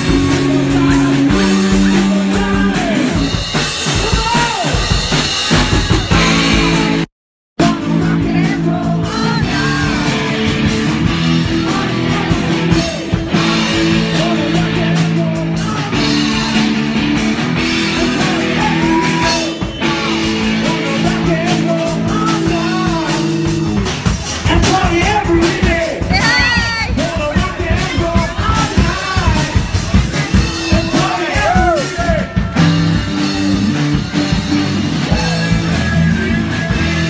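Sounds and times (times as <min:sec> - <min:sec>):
person singing: 0:00.0 - 0:03.4, 0:06.6 - 0:17.0, 0:17.8 - 0:19.6, 0:20.4 - 0:32.8
drums: 0:00.0 - 0:37.0
electric guitar: 0:00.0 - 0:37.0.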